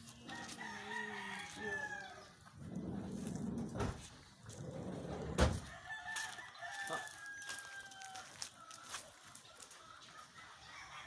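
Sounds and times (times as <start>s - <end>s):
rooster crowing: 0.3s - 2.3s, 5.6s - 9.0s.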